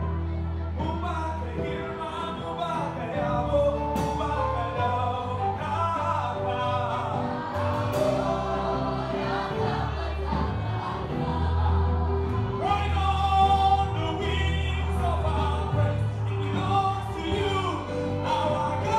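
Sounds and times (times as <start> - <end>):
low bass notes: 0.0 - 18.9
choir singing in harmony: 4.0 - 18.9.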